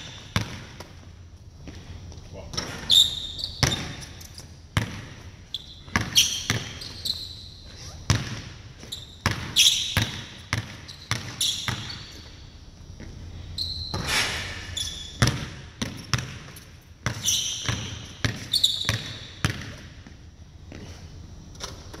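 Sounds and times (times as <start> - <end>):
basketball bouncing on hardwood: 0.1 - 1.0, 3.6 - 4.0, 4.8 - 5.2, 5.9 - 6.8, 8.1 - 8.6, 9.2 - 12.2, 15.2 - 20.2
sneakers squeaking on wood: 2.5 - 4.3, 5.5 - 15.4, 17.1 - 19.4.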